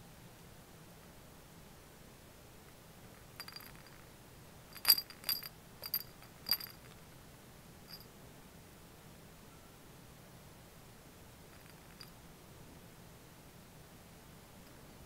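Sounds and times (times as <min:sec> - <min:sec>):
sharp ringing clinks: 0:03.4 - 0:04.0, 0:04.7 - 0:07.0, 0:07.9 - 0:08.1, 0:11.5 - 0:12.1.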